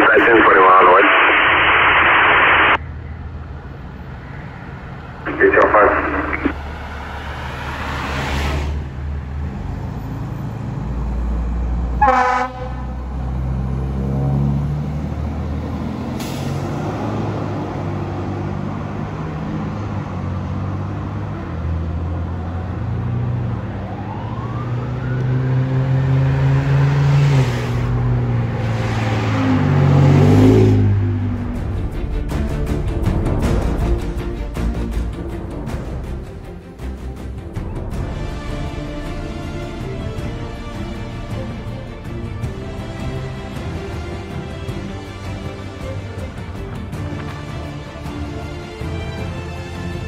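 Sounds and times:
air horn blast: 0:12.0 - 0:13.0
faint siren: 0:23.6 - 0:25.9.

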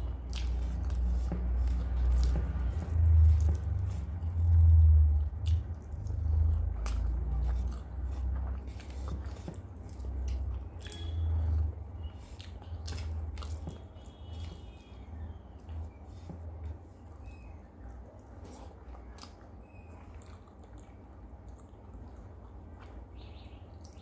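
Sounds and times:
fingers mixing rice on plate: 0:00.0 - 0:17.2
close chewing: 0:00.0 - 0:24.0.

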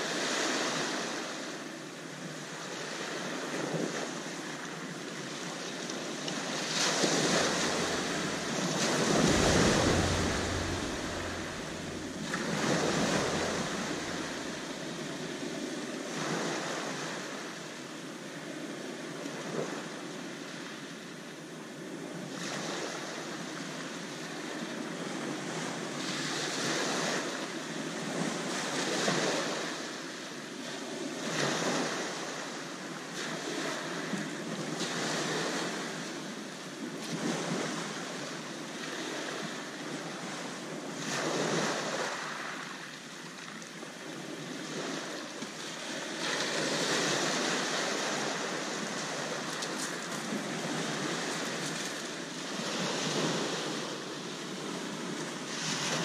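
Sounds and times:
waves washing up shingle beach: 0:02.6 - 0:17.7, 0:37.1 - 0:56.0.

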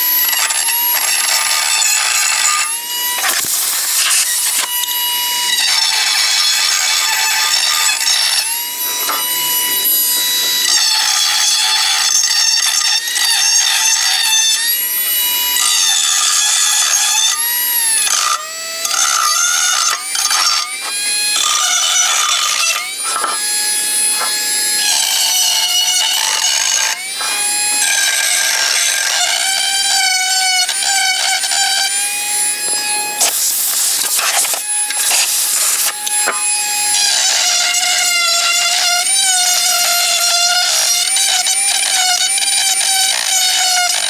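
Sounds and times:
metal tool scraping gasket: 0:18.0 - 0:31.8, 0:32.7 - 0:44.0.

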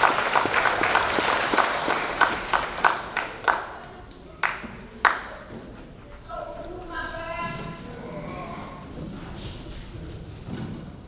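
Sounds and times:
audience applause: 0:00.0 - 0:05.9.

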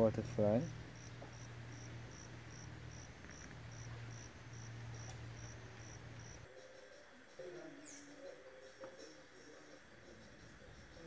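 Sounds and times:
low hum: 0:00.2 - 0:06.5
insect chirping: 0:00.6 - 0:11.0.

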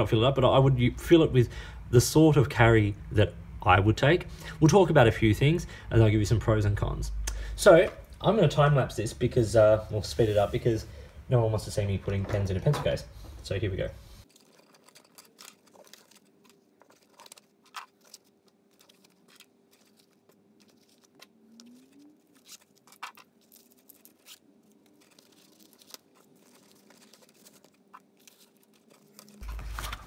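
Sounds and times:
faint steady hum: 0:00.0 - 0:30.0
pens clicking and rustling: 0:14.2 - 0:30.0.

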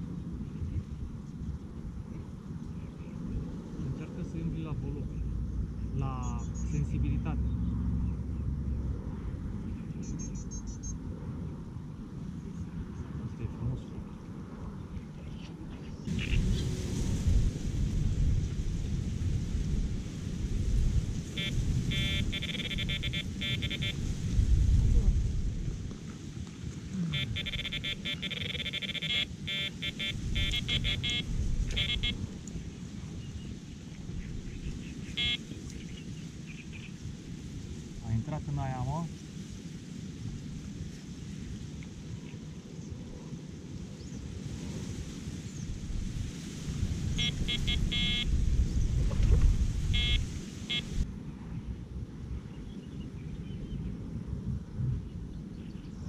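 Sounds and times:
wind on microphone: 0:00.0 - 0:56.0
electronic bite alarm beeping: 0:21.4 - 0:24.0, 0:27.1 - 0:32.2, 0:35.2 - 0:35.5, 0:47.2 - 0:48.3, 0:49.9 - 0:51.0.

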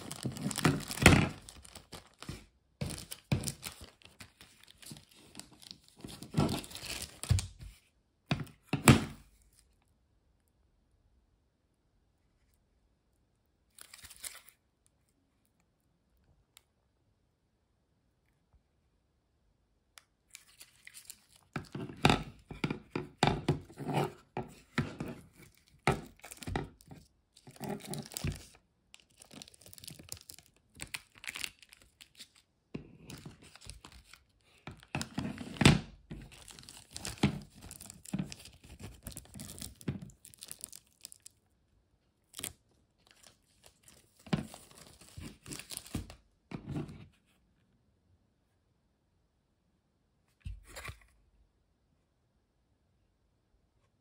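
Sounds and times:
plastic packaging crinkling: 0:00.0 - 0:07.6, 0:20.3 - 0:22.0, 0:24.5 - 0:41.4, 0:42.2 - 0:46.2.

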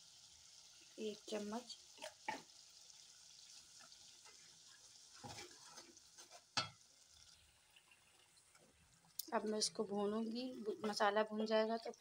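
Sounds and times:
spices frying in oil: 0:00.0 - 0:12.0
spatula scraping a metal pot: 0:04.2 - 0:06.6.

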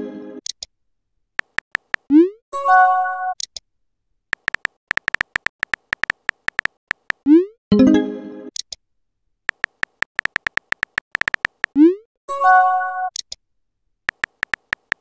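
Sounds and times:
keyboard typing clicks: 0:01.4 - 0:02.1, 0:04.3 - 0:07.3, 0:09.5 - 0:11.8, 0:14.1 - 0:15.0.

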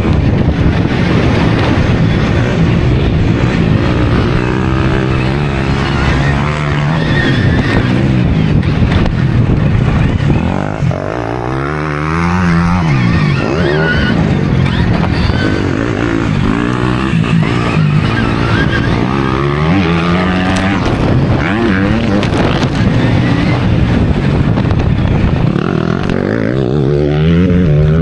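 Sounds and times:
wind and track noise: 0:00.0 - 0:28.0.

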